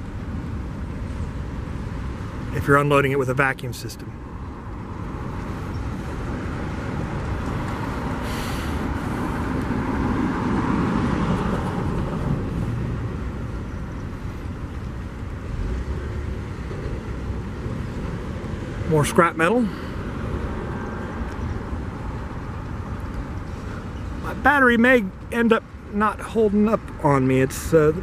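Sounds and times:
freight train wheels rumbling on rail: 0:06.3 - 0:24.3
brief hiss: 0:08.2 - 0:09.4.

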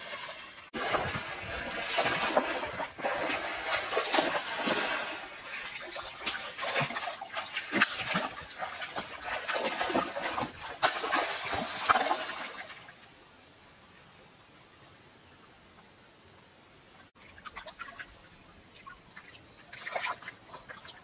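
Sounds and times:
stream water splashing: 0:00.0 - 0:13.1, 0:17.2 - 0:21.0
faint bird chirp: 0:13.1 - 0:21.0.

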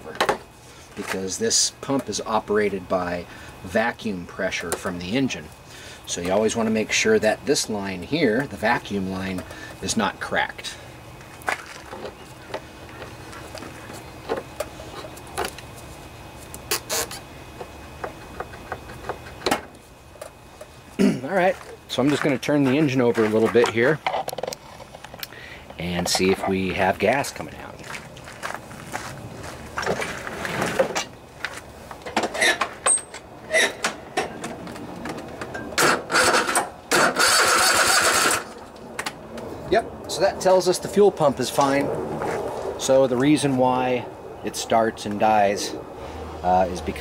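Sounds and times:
steady low hum: 0:00.0 - 0:47.0
scraping rustle: 0:28.2 - 0:31.7
electric starter cranking engine: 0:35.8 - 0:38.7.

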